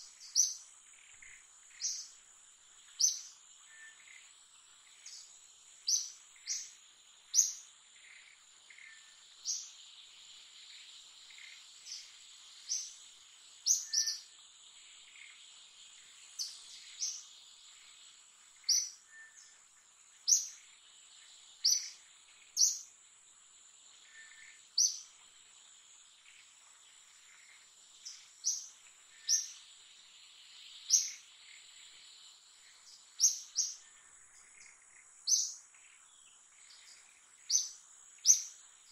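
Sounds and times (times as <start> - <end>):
sharp high bird chirps: 13.7 - 14.3.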